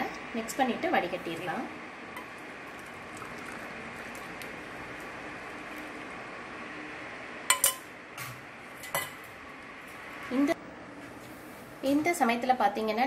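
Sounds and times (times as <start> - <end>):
metal spoon clinking against vessel: 7.5 - 7.8.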